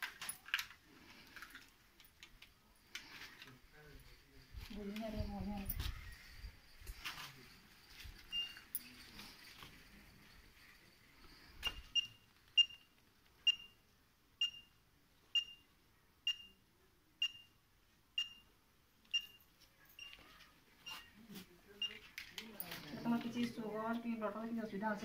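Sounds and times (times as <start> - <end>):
pulse oximeter beeping: 8.3 - 8.7, 11.6 - 12.9, 13.5 - 13.8, 14.4 - 14.8, 15.4 - 15.7, 16.3 - 16.6, 17.2 - 17.6, 18.2 - 18.5, 20.8 - 21.2.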